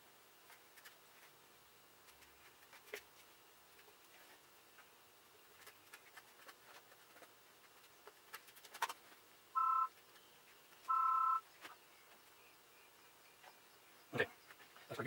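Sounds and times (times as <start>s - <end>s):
two-tone electronic beeps: 9.6s - 9.9s, 10.9s - 11.4s.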